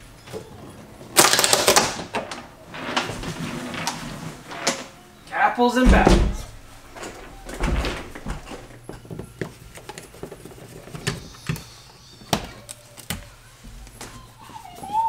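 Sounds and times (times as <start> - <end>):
dull thump: 5.8 - 6.6.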